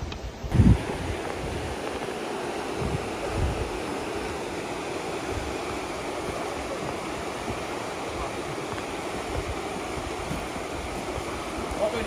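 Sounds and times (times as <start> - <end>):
river rushing over rocky rapids: 0.2 - 12.0.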